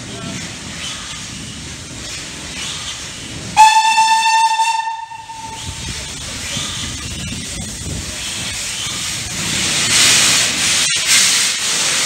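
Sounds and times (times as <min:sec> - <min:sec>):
steam whistle blast: 0:03.6 - 0:05.7
steady steam hiss: 0:05.0 - 0:12.0.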